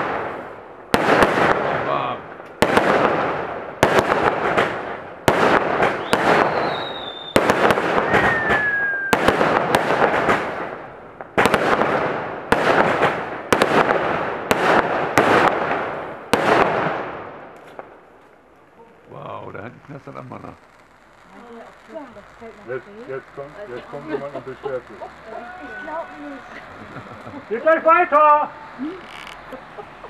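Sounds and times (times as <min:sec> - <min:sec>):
fireworks bangs: 0:00.0 - 0:30.0
fireworks crackling: 0:00.0 - 0:30.0
falling firework whistles: 0:05.3 - 0:10.8, 0:23.4 - 0:29.7.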